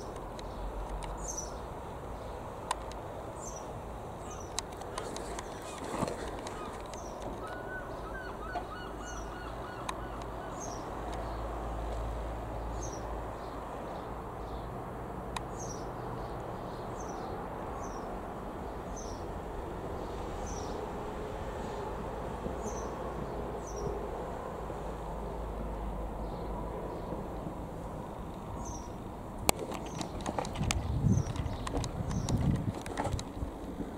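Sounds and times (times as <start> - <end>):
bird chirping: 0.0 - 2.4, 3.4 - 11.4, 28.6 - 29.0
light aircraft droning overhead: 0.0 - 32.4
lower bird calls: 3.4 - 11.4.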